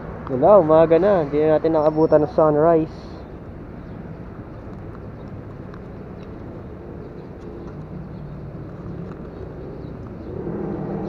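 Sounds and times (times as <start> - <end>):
faint vehicle engine: 0.0 - 11.0
road noise: 0.0 - 11.0
wind noise: 3.3 - 11.0.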